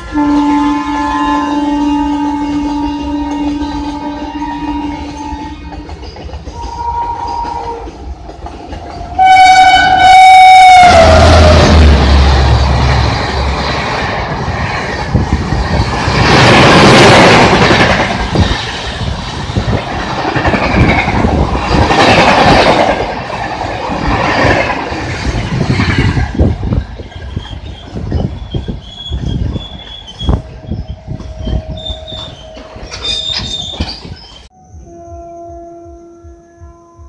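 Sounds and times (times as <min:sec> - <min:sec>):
train rushing past: 0:00.0 - 0:37.0
wheels clacking over rail joints: 0:02.5 - 0:09.6.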